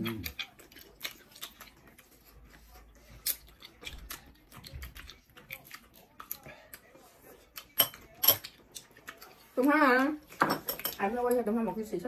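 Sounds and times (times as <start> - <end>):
wet chewing clicks and smacks: 0.0 - 6.9.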